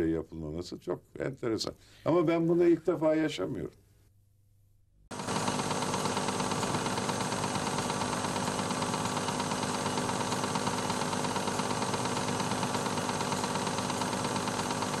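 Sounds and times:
film projector whirring and clattering: 5.1 - 15.0.

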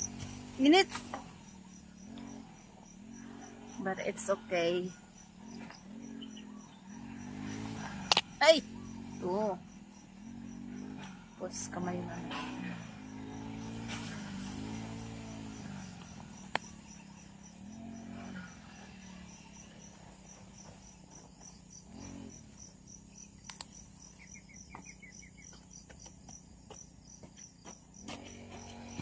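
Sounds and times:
insect chirping: 0.0 - 29.0
sharp clicks: 7.9 - 8.3, 23.4 - 23.8.

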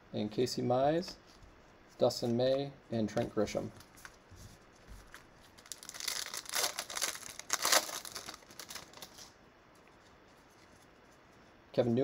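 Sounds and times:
wrapper tearing and crinkling: 5.5 - 9.3.

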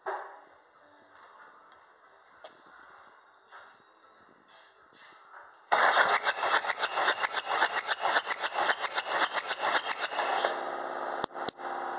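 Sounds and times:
starter motor cranking engine: 5.7 - 10.6.

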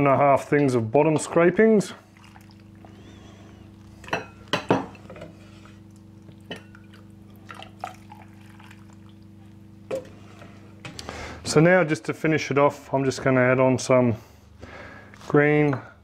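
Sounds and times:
broth splashing and dripping: 2.1 - 3.1, 5.8 - 9.9.

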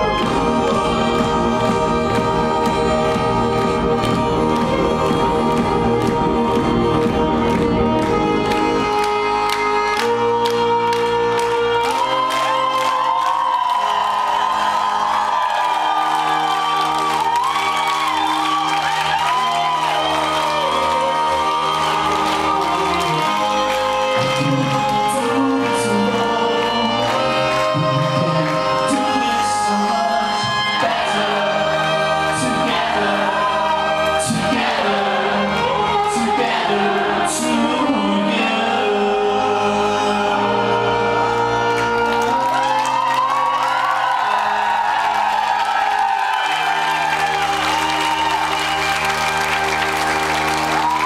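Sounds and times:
live band music: 0.0 - 51.0
violin: 0.0 - 51.0
crowd whooping: 12.0 - 23.7, 41.8 - 51.0.

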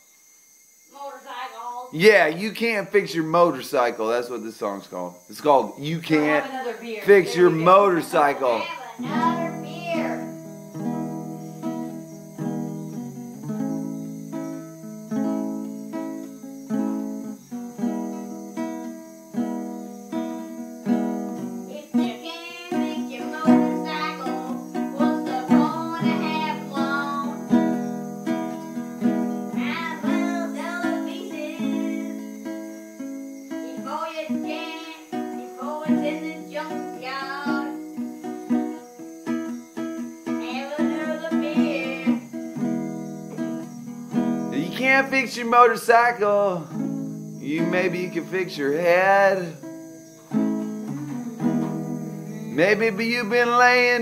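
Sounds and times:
strummed guitar: 5.4 - 54.0
man singing: 7.0 - 8.7, 44.5 - 46.7, 47.4 - 49.6, 52.2 - 54.0.

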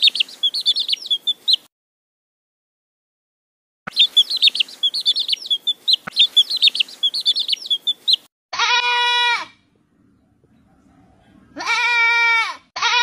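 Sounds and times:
baby chicks peeping: 0.0 - 1.7, 3.9 - 8.3
young goat bleating: 8.5 - 9.6, 11.6 - 13.0.

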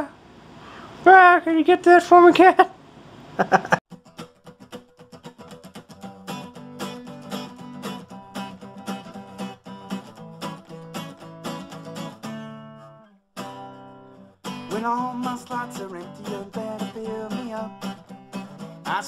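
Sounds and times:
acoustic guitar strumming: 3.9 - 19.0.

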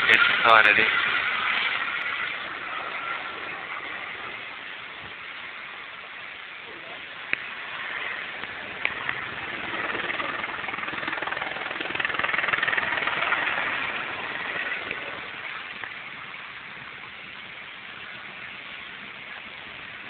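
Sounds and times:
helicopter flying past: 0.0 - 5.2, 6.7 - 16.8.

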